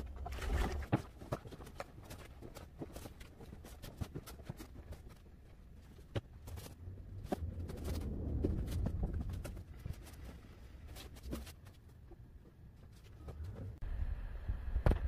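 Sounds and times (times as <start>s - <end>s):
low rumble: 6.7s - 11.0s.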